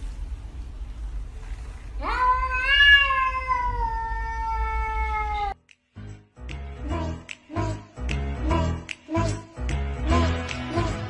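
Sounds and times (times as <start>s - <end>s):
cat yowling: 2.0s - 5.6s.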